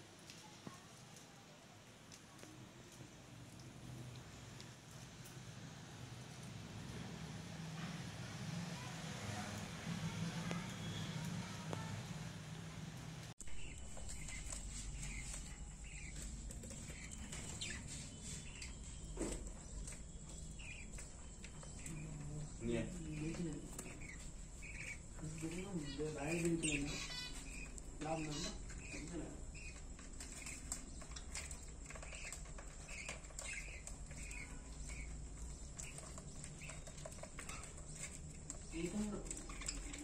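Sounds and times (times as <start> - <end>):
budgerigars chirping: 13.5 - 40.0.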